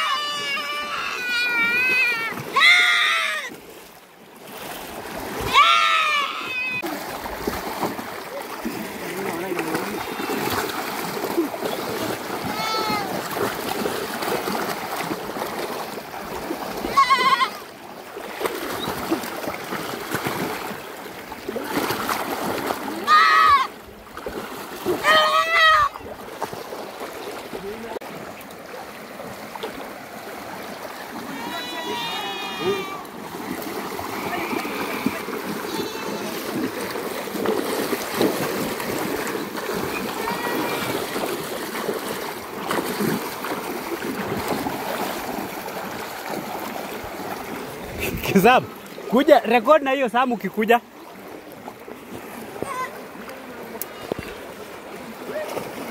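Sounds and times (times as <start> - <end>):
wading through water splashing: 0.0 - 55.9
goat bleating: 16.9 - 17.6.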